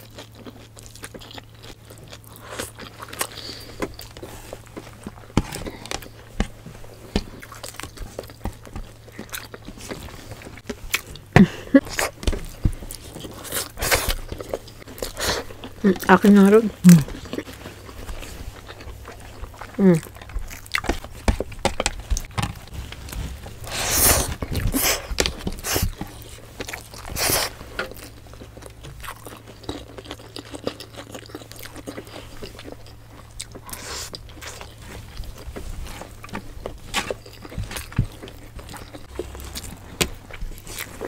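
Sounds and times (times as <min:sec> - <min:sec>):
crunchy chewing and biting: 0:00.0 - 0:41.0
wet mouth sounds: 0:15.1 - 0:17.2.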